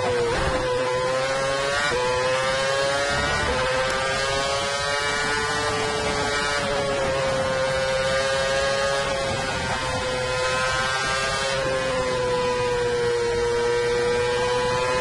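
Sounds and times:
racing car engine at high revs: 0:00.0 - 0:15.0.

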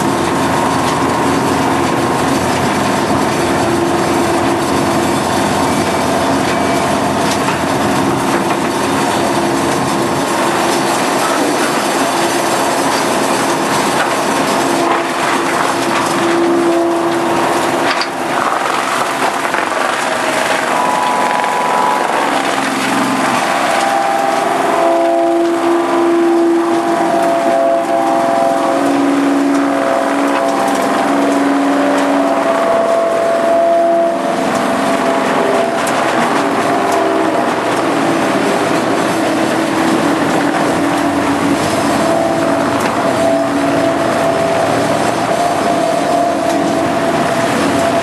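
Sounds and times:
wood crusher engine droning: 0:00.0 - 0:48.0
splintering wood cracks and crunches: 0:12.8 - 0:24.0.

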